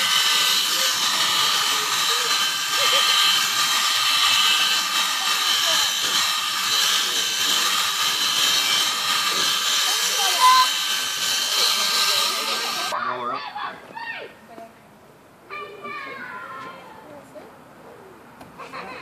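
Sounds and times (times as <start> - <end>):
electric clippers whining: 0.0 - 13.0.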